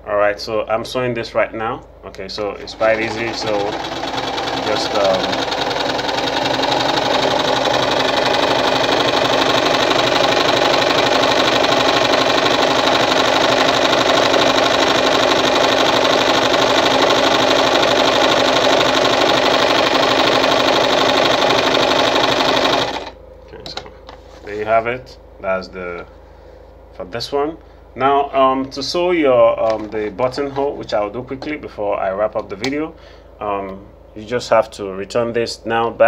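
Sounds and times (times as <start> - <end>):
sewing machine running: 2.6 - 23.2.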